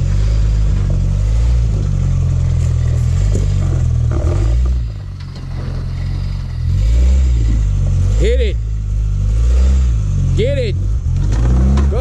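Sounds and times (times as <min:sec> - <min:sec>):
engine revving under load: 0:00.0 - 0:12.0.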